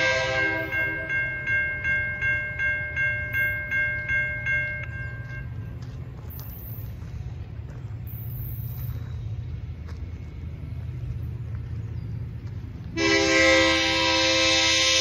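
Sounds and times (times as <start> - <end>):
locomotive air horn chord: 0.0 - 1.2, 12.9 - 15.0
low steady rumble: 0.0 - 14.9.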